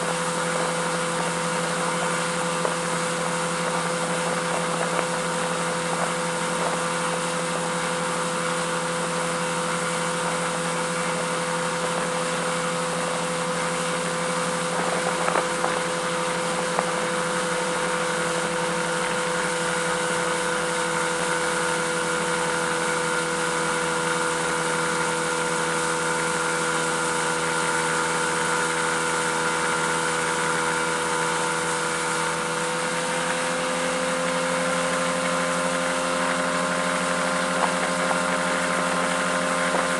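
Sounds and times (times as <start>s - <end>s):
outboard motor running: 0.0s - 39.9s
rushing water: 0.0s - 39.9s
wind: 0.0s - 39.9s.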